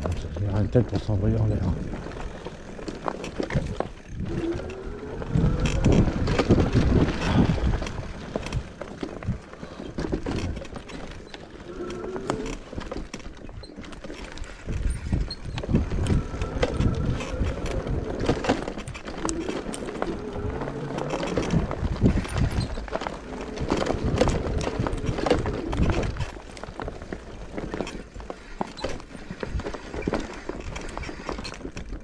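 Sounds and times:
bike rattling over bumps: 0.0s - 32.0s
wind buffeting microphone: 3.5s - 9.4s, 14.6s - 26.4s.

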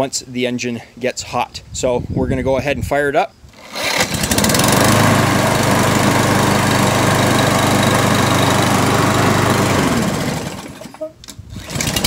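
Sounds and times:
lawn mower engine running: 3.6s - 12.0s.

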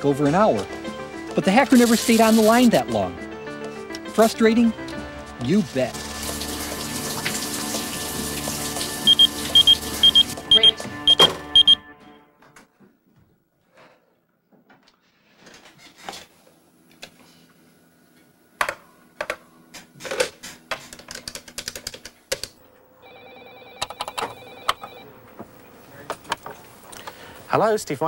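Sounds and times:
telephone ringing: 9.0s - 11.9s, 23.0s - 25.2s
typing on keyboard: 21.0s - 22.5s.

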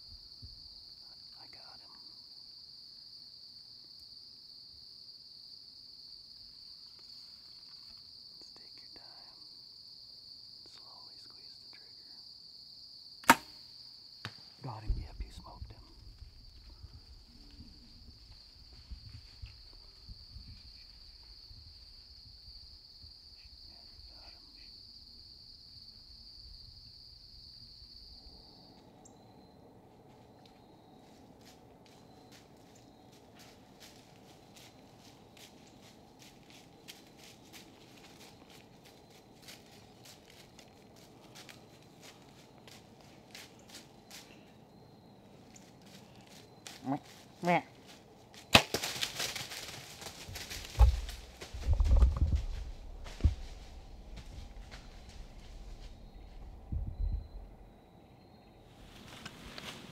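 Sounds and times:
crickets singing: 0.0s - 59.9s
insects trilling: 0.0s - 59.9s
low rumble: 50.8s - 57.8s.

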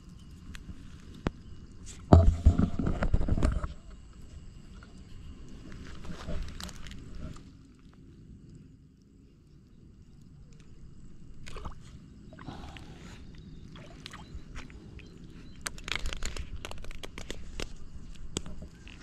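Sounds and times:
handling knocks and scrapes: 1.9s - 3.8s
water splashing and sloshing: 10.4s - 19.0s.

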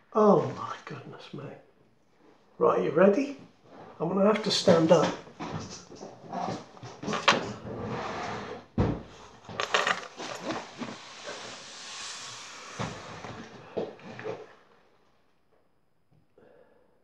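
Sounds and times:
cloth and plastic rustling: 9.0s - 14.8s.

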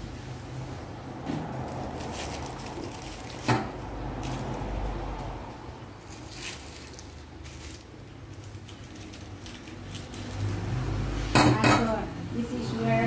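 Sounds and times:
packaging rustling: 1.5s - 4.7s, 6.0s - 10.7s.

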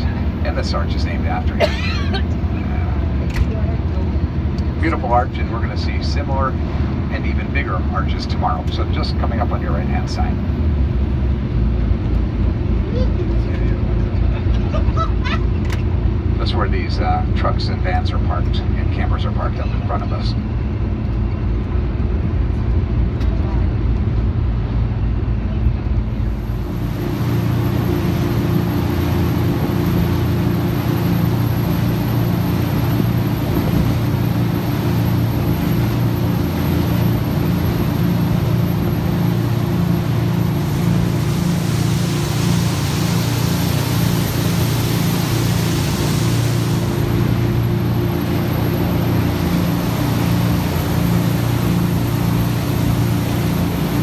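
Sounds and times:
vehicle ride rumble: 0.0s - 54.0s
boat engine running: 25.0s - 54.0s
hiss of water and wind: 26.2s - 54.0s.

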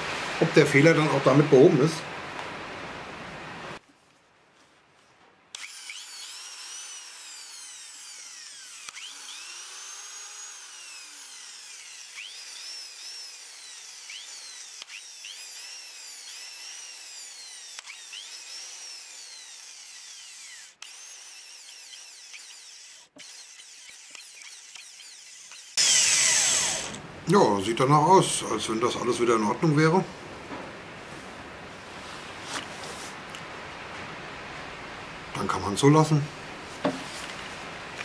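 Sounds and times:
electric impact wrench motor whine: 5.6s - 27.0s.

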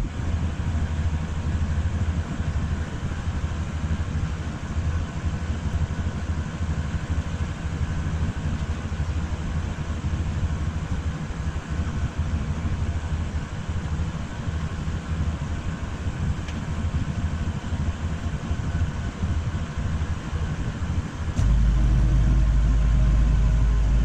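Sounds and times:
engine idling: 0.0s - 24.0s.

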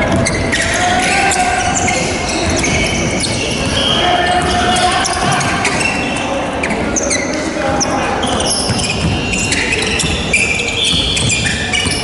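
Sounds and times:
players' voices in echoing hall: 0.0s - 12.0s
sneakers squeaking: 0.0s - 12.0s
basketball bouncing: 8.2s - 12.0s.

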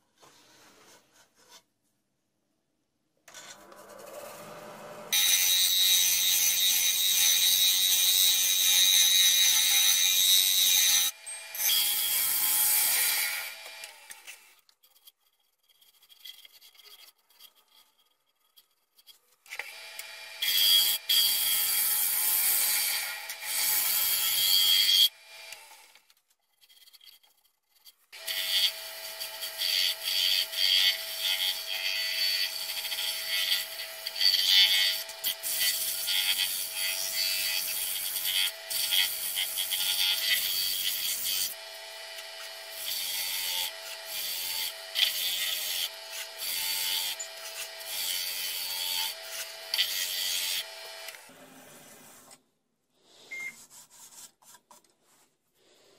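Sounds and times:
tool scraping spinning wood: 12.9s - 19.7s, 40.4s - 52.4s.

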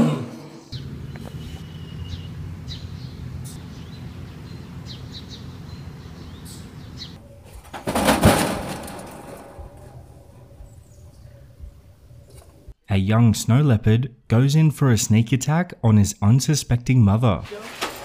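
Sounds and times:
small birds chirping: 0.5s - 7.6s, 9.8s - 12.8s.

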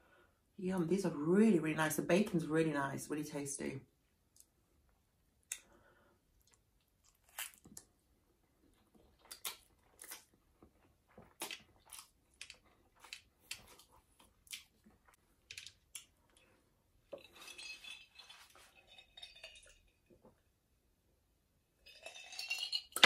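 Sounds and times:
person chewing noodles: 8.6s - 16.6s
utensils clinking on glass bowl: 17.2s - 20.0s, 21.9s - 23.0s.

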